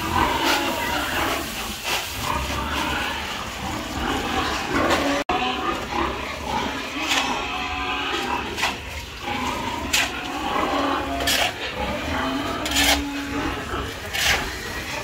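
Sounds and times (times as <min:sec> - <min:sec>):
grain being poured: 0:00.0 - 0:05.1
farm animals calling: 0:00.0 - 0:15.0
shovel scraping on concrete: 0:00.0 - 0:15.0.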